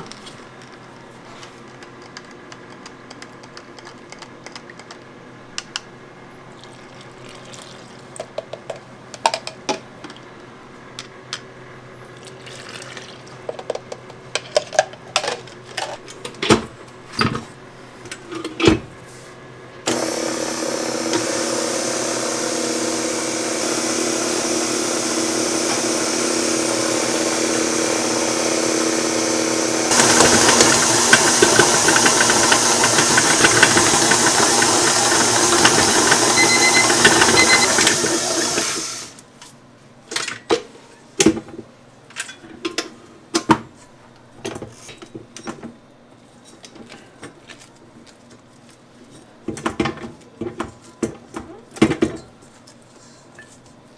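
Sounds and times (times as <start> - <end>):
stand mixers running: 19.9 - 39.2.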